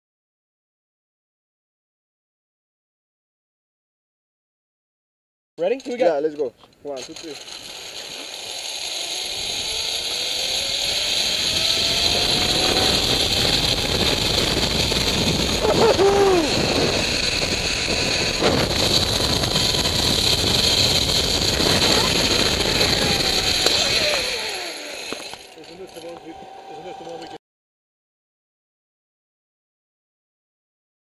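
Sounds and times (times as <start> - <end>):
pulley whining along cable: 6.9 - 27.4
wind rushing: 9.4 - 25.1
person whooping: 15.6 - 17.1.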